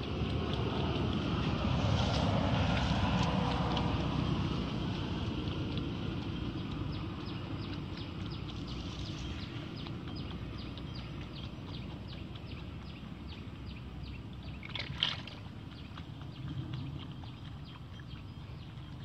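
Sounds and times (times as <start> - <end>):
steady low rumble: 0.0 - 19.0.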